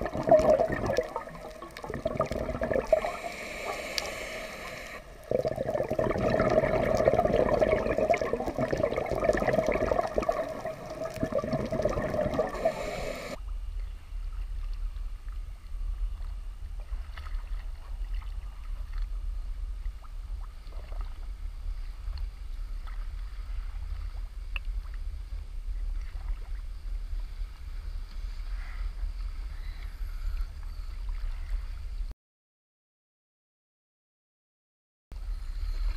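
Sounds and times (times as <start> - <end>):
faint splashes: 0.0 - 13.4
underwater bubbling and rushing water: 0.0 - 13.4, 14.1 - 31.6
choppy sea water rumble: 0.0 - 32.1.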